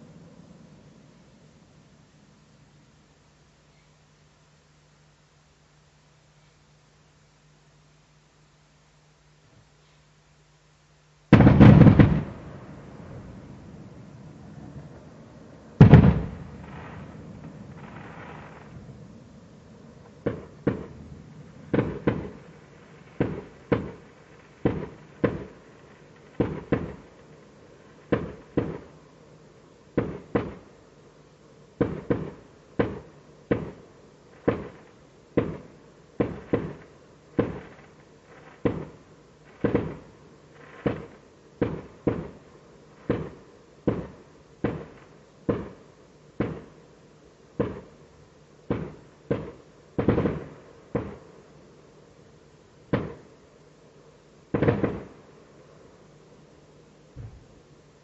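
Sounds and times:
fireworks bangs with echo: 11.3s - 13.6s, 15.8s - 18.8s, 20.1s - 29.0s, 29.9s - 30.7s, 31.8s - 46.8s, 47.6s - 48.0s, 48.6s - 51.3s, 52.9s - 53.3s, 54.5s - 55.2s.

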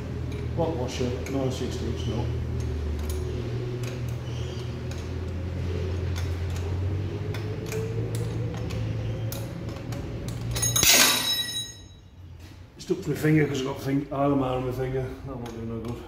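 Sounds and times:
steady low hum: 0.0s - 16.0s
small metallic clicks: 2.5s - 11.0s.

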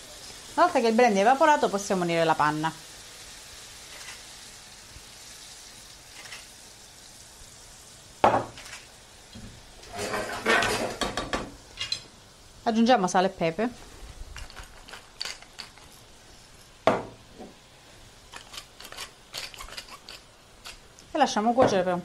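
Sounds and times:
fish sizzling in butter: 0.0s - 22.0s
metal utensil scraping pan: 9.8s - 11.1s, 18.3s - 20.8s.

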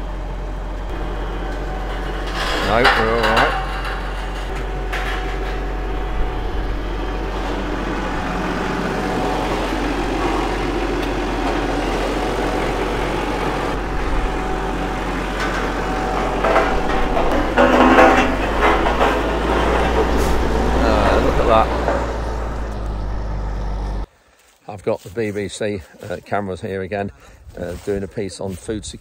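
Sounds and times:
tractor diesel engine running: 0.0s - 24.1s
clatter on metal ramps: 0.9s - 22.8s.

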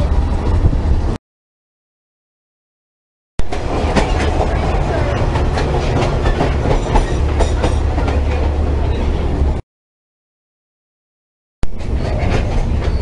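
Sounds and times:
train car rumble: 0.0s - 1.2s, 3.4s - 9.6s, 11.6s - 13.0s.

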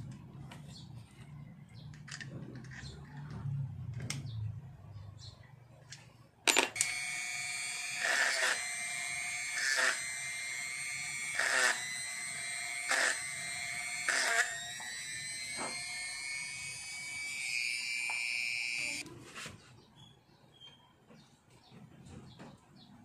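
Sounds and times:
drill bit grinding: 6.5s - 19.0s
rotary tool whining: 6.5s - 19.0s.

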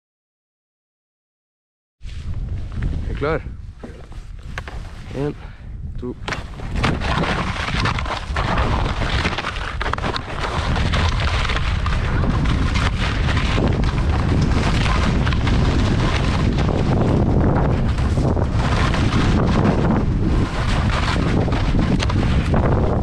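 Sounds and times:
skis scraping over crusty snow: 2.0s - 5.4s, 6.2s - 23.0s
wind buffeting microphone: 2.0s - 23.0s.

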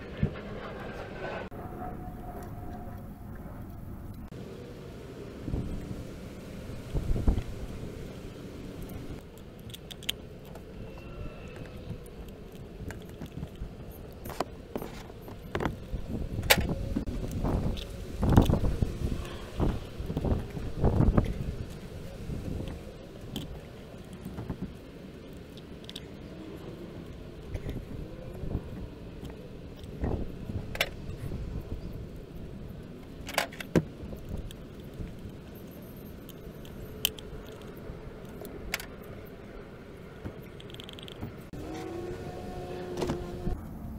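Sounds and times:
small metal parts clicking: 8.8s - 14.4s, 25.2s - 27.9s, 33.1s - 39.1s, 40.4s - 41.2s.

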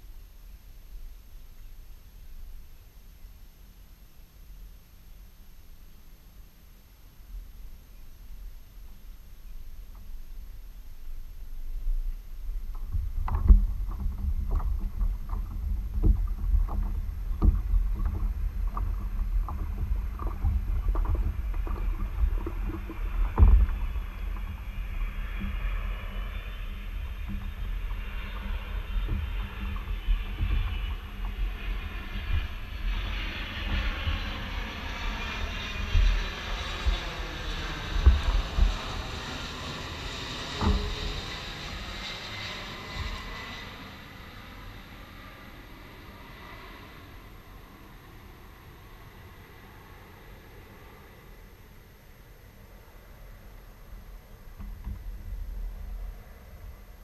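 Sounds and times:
airplane passing overhead: 0.0s - 57.0s
wind rumble on microphone: 0.0s - 57.0s.

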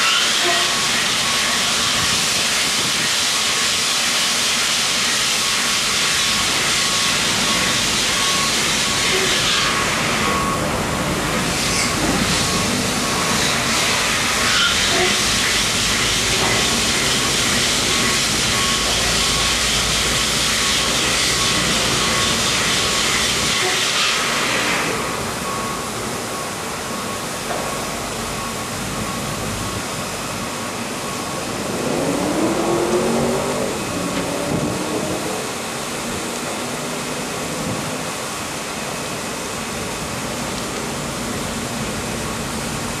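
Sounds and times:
washing machine running: 0.0s - 43.0s
short rising whine: 28.3s - 37.6s.

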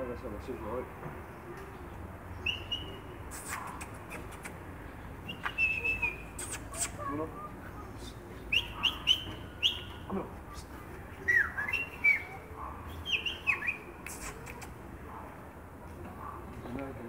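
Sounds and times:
kissing mouth clicks: 3.3s - 4.7s, 5.3s - 7.3s, 13.5s - 14.9s.

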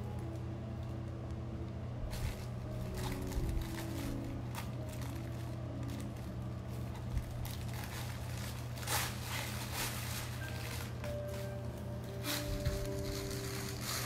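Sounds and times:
faint held musical tones: 0.0s - 14.0s
steady low hum: 0.0s - 14.0s
fabric rustle: 2.0s - 14.0s
kittens scuffling against fabric tunnel: 6.9s - 11.4s.

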